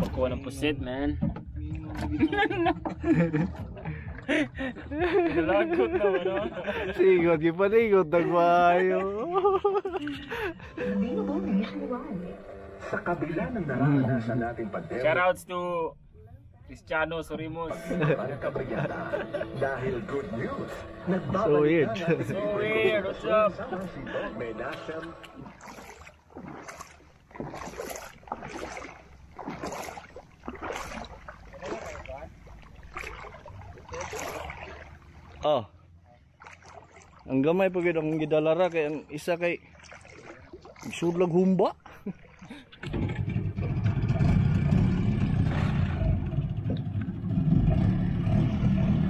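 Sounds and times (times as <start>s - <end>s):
outboard motor droning: 10.1s - 15.0s, 17.7s - 35.4s, 41.8s - 49.0s
sea water splashing: 17.7s - 48.9s
low steady rumble: 42.9s - 49.0s.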